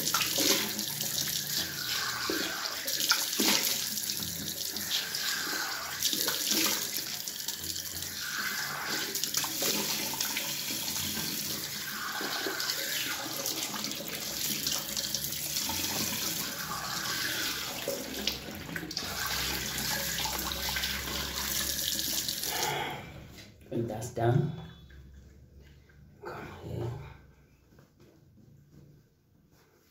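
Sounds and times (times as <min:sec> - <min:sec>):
tap water running into sink: 0:00.0 - 0:22.7.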